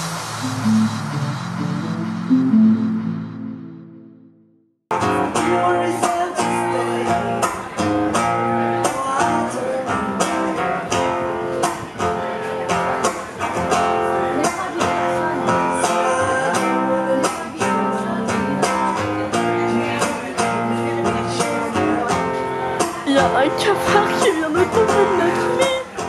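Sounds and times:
acoustic guitar strumming: 0:00.0 - 0:26.0.

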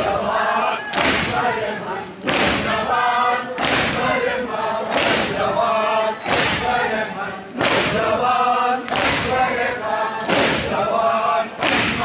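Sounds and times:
men chanting in unison: 0:00.0 - 0:12.0
hands slapping chests: 0:00.9 - 0:01.4, 0:02.2 - 0:02.8, 0:03.6 - 0:04.1, 0:04.9 - 0:05.4, 0:07.6 - 0:08.1, 0:08.9 - 0:09.3, 0:10.2 - 0:10.7, 0:11.6 - 0:12.0.

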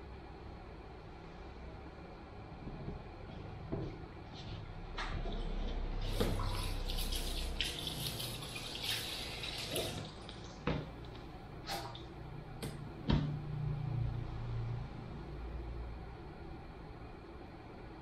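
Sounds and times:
water splashing into basin: 0:06.0 - 0:12.2.

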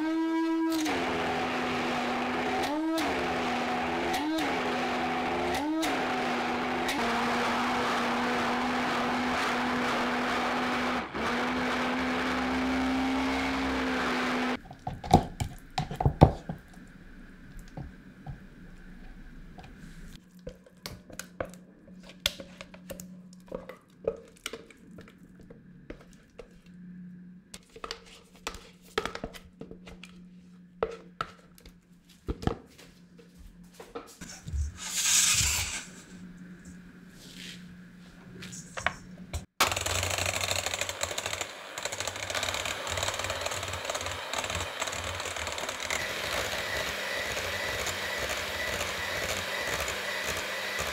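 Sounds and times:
electric hand mixer: 0:00.0 - 0:14.6, 0:39.6 - 0:50.9
spatula scraping blender jug: 0:40.2 - 0:50.9.

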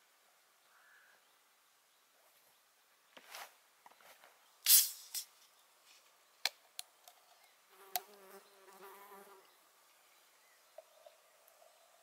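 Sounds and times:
brief rustle: 0:03.2 - 0:06.1
insect buzzing: 0:07.7 - 0:09.6.

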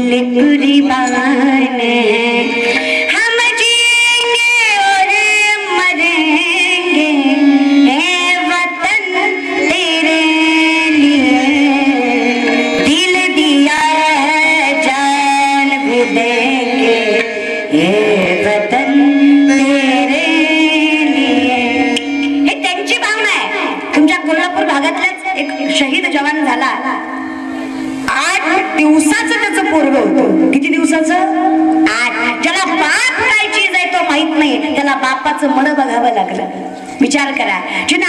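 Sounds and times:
voices singing devotional song: 0:04.8 - 0:22.4.

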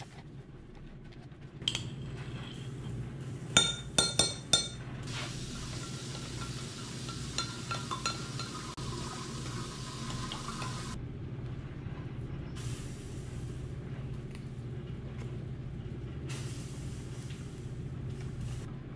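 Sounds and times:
steady low hum: 0:00.0 - 0:08.5, 0:10.9 - 0:18.9
spoon clinking against glass: 0:03.6 - 0:04.8, 0:05.8 - 0:08.7
metal spoon stirring liquid: 0:05.8 - 0:08.8.

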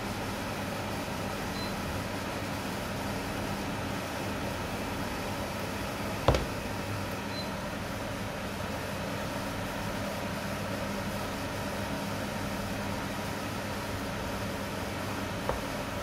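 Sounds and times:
sharp knock: 0:06.3 - 0:06.6.

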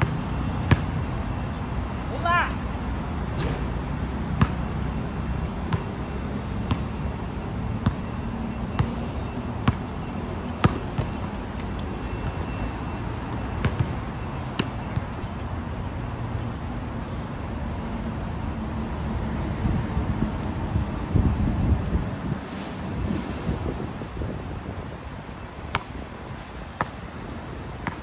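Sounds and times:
basketball bouncing on hard court: 0:00.0 - 0:01.2, 0:04.4 - 0:05.0, 0:05.7 - 0:07.0, 0:07.8 - 0:12.5, 0:13.6 - 0:14.0.

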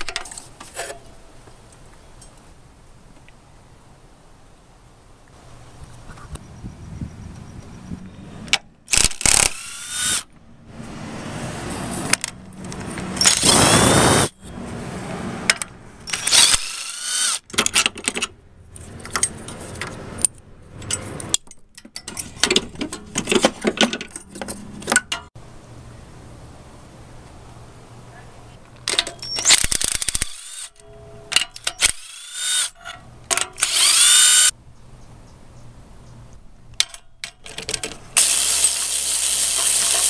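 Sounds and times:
power tool spinning socket: 0:08.9 - 0:10.3, 0:12.1 - 0:14.3, 0:16.1 - 0:17.9, 0:28.9 - 0:30.8, 0:31.5 - 0:34.5, 0:37.5 - 0:40.0
metallic clicks of tool and bolt: 0:15.5 - 0:25.3, 0:28.8 - 0:34.2, 0:36.8 - 0:38.8.

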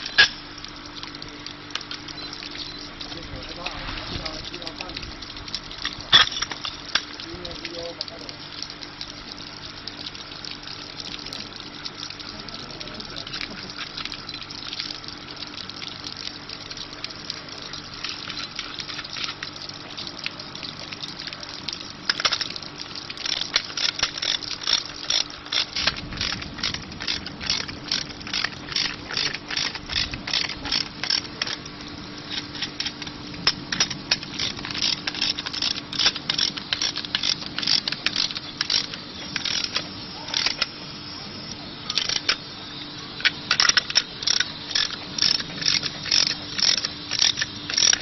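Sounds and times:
steady hiss: 0:00.0 - 0:48.0
spanner clicking on bolt: 0:33.7 - 0:39.8, 0:43.5 - 0:48.0.

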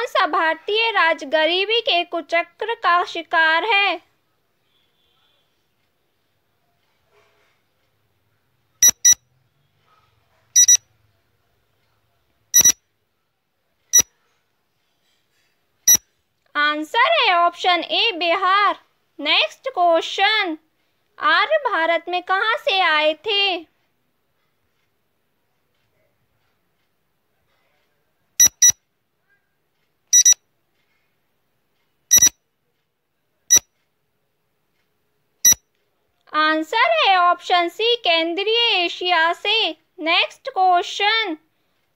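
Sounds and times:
electronic timer beeps: 0:08.8 - 0:09.3, 0:10.6 - 0:10.8, 0:12.6 - 0:12.8, 0:28.4 - 0:28.8, 0:30.1 - 0:30.4, 0:32.1 - 0:32.4, 0:33.5 - 0:33.7, 0:35.4 - 0:35.6.

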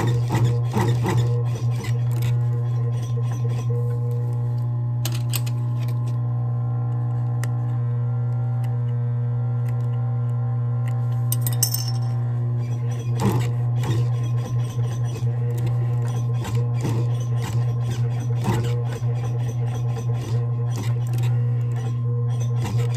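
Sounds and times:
sewing machine motor humming: 0:00.0 - 0:05.3.

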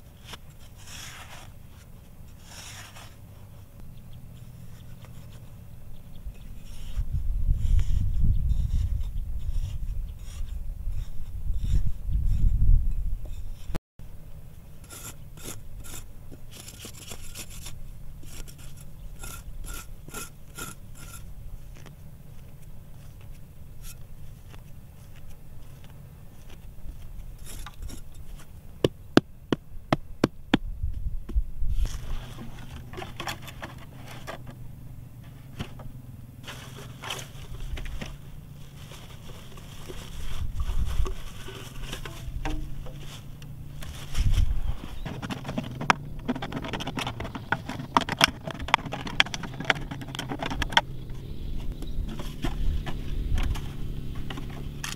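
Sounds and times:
knife scraping hard soil: 0:00.0 - 0:03.5, 0:06.5 - 0:12.6, 0:14.8 - 0:21.9, 0:23.8 - 0:24.1, 0:27.2 - 0:28.5, 0:31.8 - 0:34.6.

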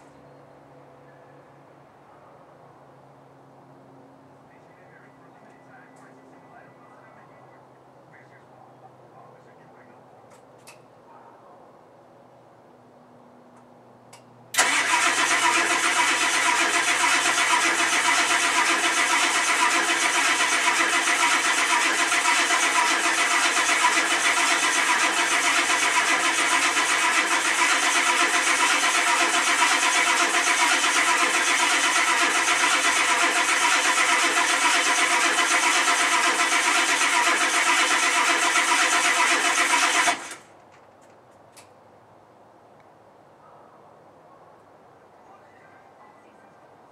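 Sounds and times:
diesel engine cranking on starter: 0:14.5 - 0:40.6.

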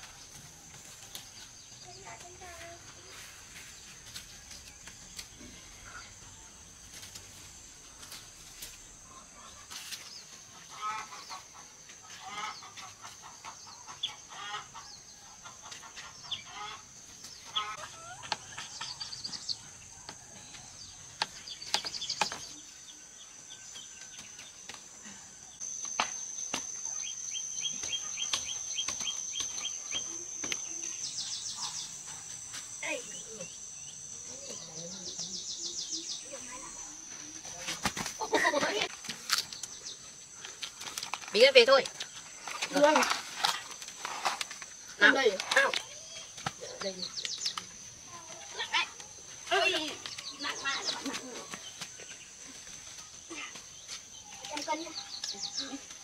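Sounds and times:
insect buzz: 0:00.0 - 0:56.0
bird calls: 0:09.0 - 0:56.0
cucumbers being picked: 0:36.5 - 0:51.7.

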